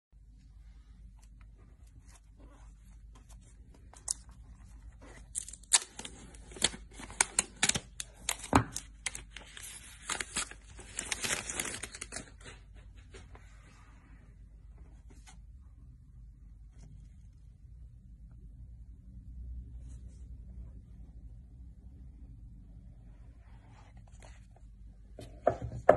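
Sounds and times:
shrink-wrap crackling and tearing: 0:05.2 - 0:12.4.

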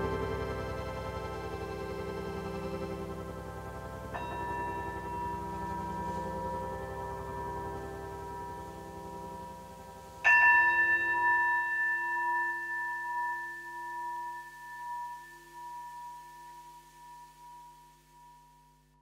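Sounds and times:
held chord: 0:00.0 - 0:11.4
bell-like tone: 0:04.1 - 0:19.0.

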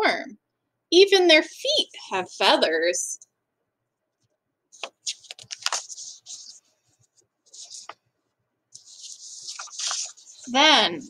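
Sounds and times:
paper rustling: 0:04.8 - 0:08.0, 0:08.8 - 0:11.0.

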